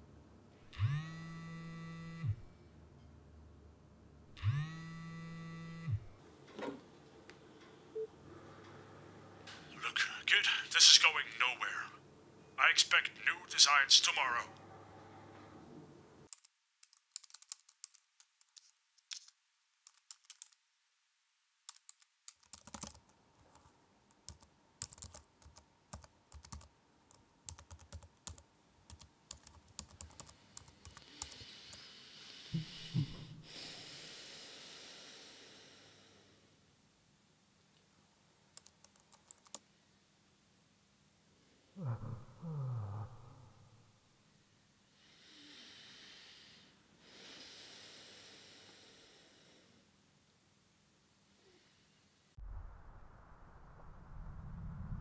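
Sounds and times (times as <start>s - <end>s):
typing on laptop keyboard: 16.3s - 20.6s, 21.7s - 31.4s, 38.6s - 39.6s.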